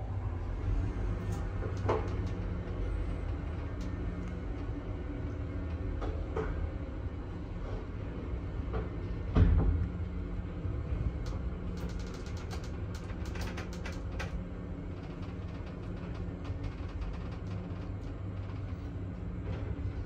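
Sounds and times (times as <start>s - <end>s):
elevator rumble and hum: 0.0s - 20.0s
sharp clicks and rattles: 11.2s - 18.9s.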